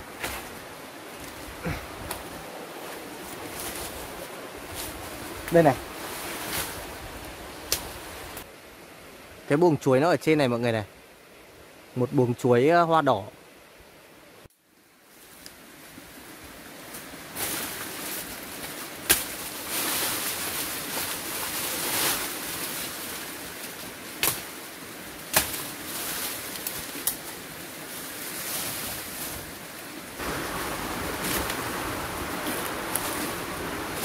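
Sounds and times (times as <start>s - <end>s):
banana leaves rustling and thrashing: 0.0s - 8.5s, 16.8s - 34.0s
sharp cracks of stems: 18.6s - 19.5s, 24.2s - 24.5s, 25.2s - 25.8s, 26.5s - 27.2s.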